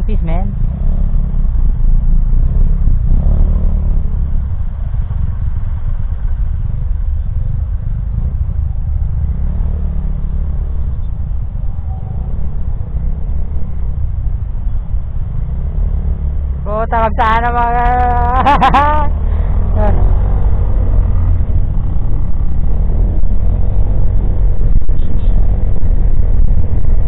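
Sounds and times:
surrounding traffic engines: 0:00.0 - 0:27.0
wind rumble on microphone: 0:00.0 - 0:27.0.

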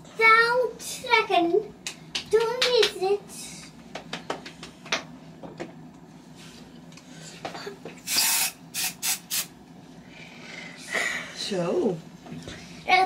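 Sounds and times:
steady low hum: 0:00.0 - 0:13.0
spray bottle hissing: 0:08.0 - 0:09.5.

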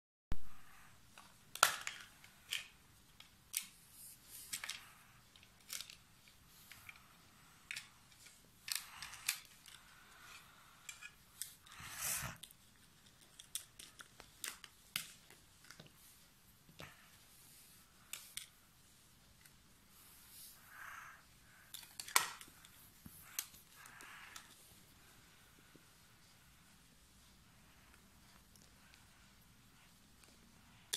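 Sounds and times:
plastic toy pieces clattering: 0:01.5 - 0:03.7, 0:04.4 - 0:06.0, 0:07.7 - 0:09.8.

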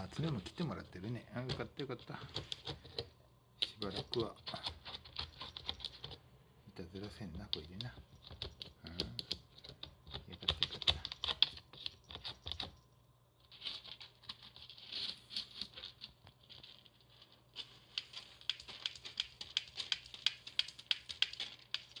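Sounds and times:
cat scratching in litter: 0:13.4 - 0:22.0.

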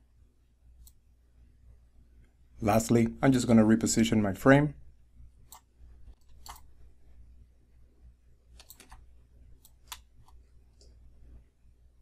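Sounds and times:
faint low hum: 0:00.0 - 0:12.0
computer mouse clicking: 0:05.5 - 0:06.7, 0:08.5 - 0:11.0.

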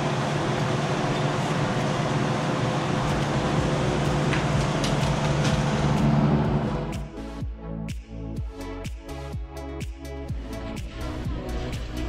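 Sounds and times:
electric fan humming: 0:00.0 - 0:07.4.

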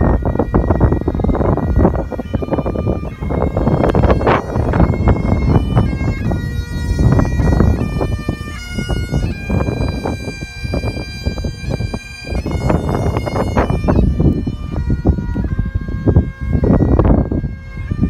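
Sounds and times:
bagpipes playing a melody: 0:00.0 - 0:18.0
wind buffeting microphone: 0:00.0 - 0:18.0.

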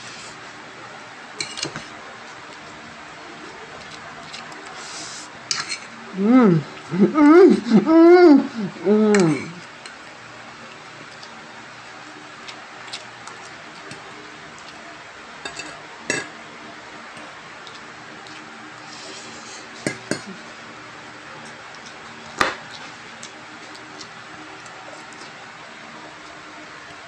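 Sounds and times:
cutlery clinking on a plate: 0:01.4 - 0:01.8, 0:15.4 - 0:16.3.

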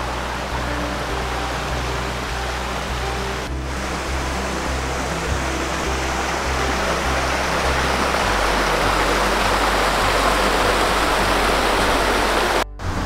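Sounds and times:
stream rushing over stones: 0:00.0 - 0:13.0.

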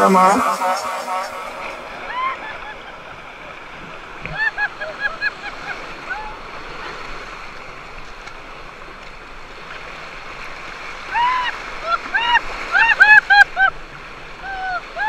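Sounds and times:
small waves breaking on shore: 0:01.8 - 0:15.0
woman laughing: 0:02.1 - 0:03.2, 0:04.3 - 0:06.3, 0:11.9 - 0:13.7.

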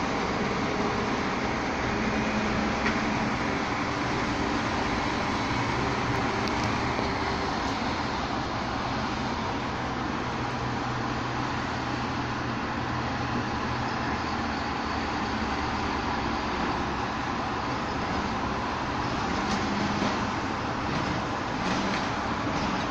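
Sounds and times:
garbage truck engine running: 0:00.0 - 0:22.9.

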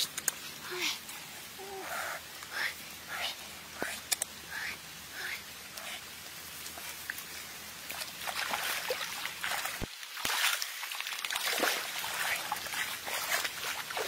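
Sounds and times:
wet grass rustling: 0:05.1 - 0:14.0
shallow water splashing: 0:07.9 - 0:14.0.

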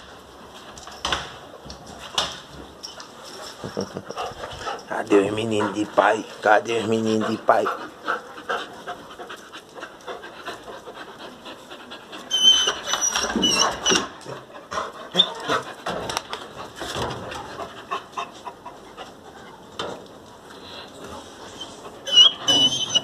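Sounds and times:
dogs panting: 0:02.8 - 0:19.6, 0:20.6 - 0:23.0
high-pitched squeak: 0:12.3 - 0:14.1, 0:21.6 - 0:23.0.

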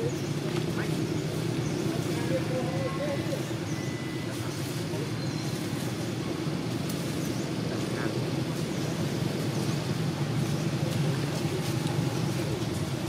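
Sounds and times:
low outdoor rumble: 0:00.0 - 0:13.0
faint high chirps: 0:03.6 - 0:04.4.

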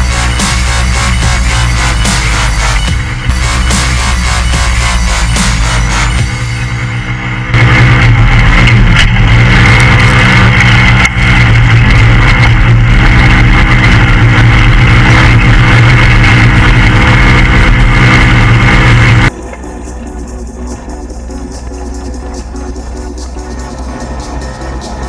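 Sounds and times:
engine running at high revs: 0:00.0 - 0:25.0
rough terrain noise: 0:07.1 - 0:25.0.

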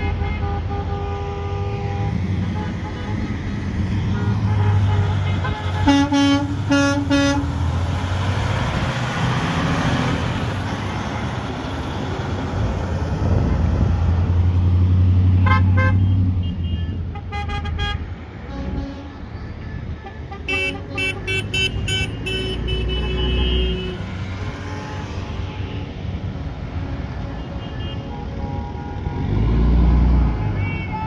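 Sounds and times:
car horns honking: 0:00.0 - 0:03.4, 0:04.0 - 0:07.7, 0:15.4 - 0:26.0, 0:26.7 - 0:31.0.

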